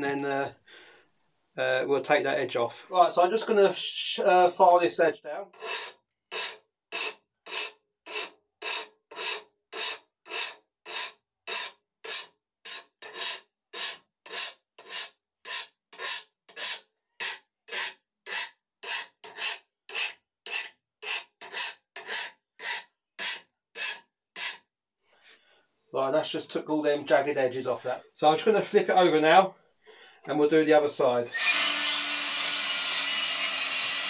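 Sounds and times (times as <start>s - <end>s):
file rasping on steel blade: 5.6s - 24.6s, 31.4s - 34.0s.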